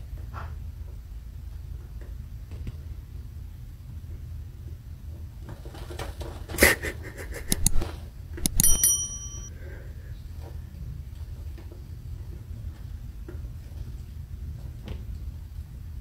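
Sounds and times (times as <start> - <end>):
scratching in cat litter: 5.4 - 8.1
bright ringing ping: 8.4 - 9.5.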